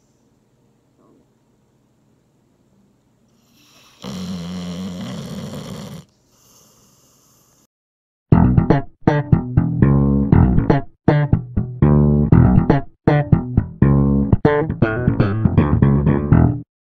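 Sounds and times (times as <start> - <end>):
plucked string music with bass: 8.3 - 16.6.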